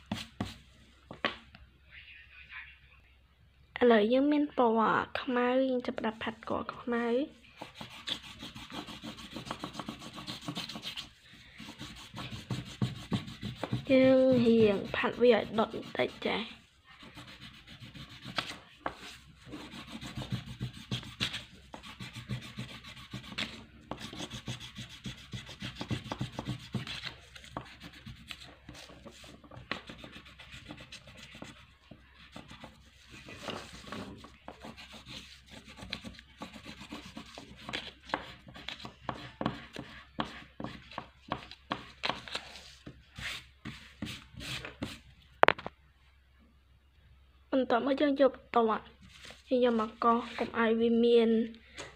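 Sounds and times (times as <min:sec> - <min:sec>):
crayon scratching on paper: 0:07.6 - 0:41.9, 0:42.5 - 0:45.0.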